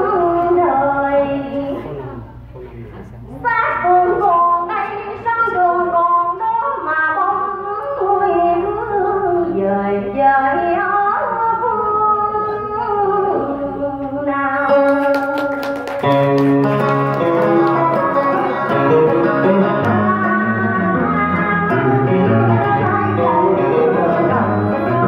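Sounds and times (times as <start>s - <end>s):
woman singing into microphone: 0.0s - 2.0s, 3.4s - 25.0s
strummed guitar chords: 14.6s - 25.0s.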